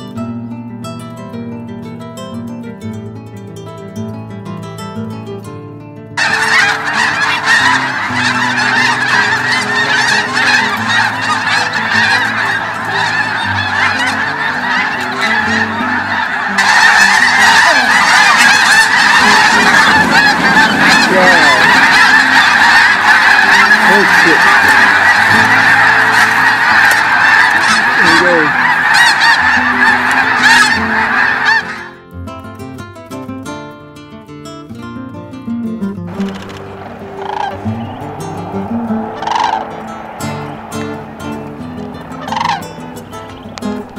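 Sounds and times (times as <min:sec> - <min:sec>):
flock of geese honking: 0:06.2 - 0:32.0, 0:36.1 - 0:43.9.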